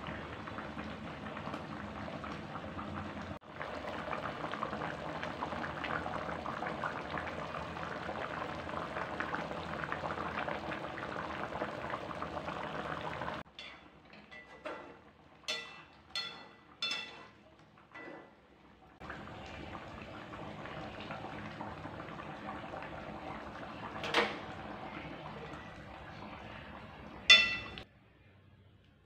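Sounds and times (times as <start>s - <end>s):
curry bubbling in a wok: 0.0s - 13.5s, 18.7s - 27.8s
metal ladle clinking against pan: 13.5s - 14.7s, 15.5s - 17.4s, 27.3s - 27.8s.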